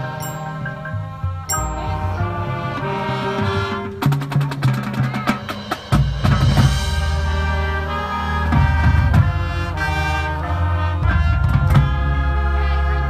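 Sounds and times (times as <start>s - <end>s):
sharp percussion hits: 0.0s - 7.5s
marching band brass chords: 0.0s - 13.0s.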